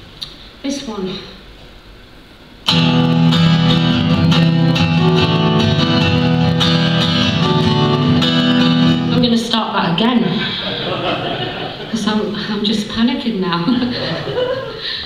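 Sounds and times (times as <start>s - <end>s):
acoustic guitar strumming: 2.6s - 10.6s.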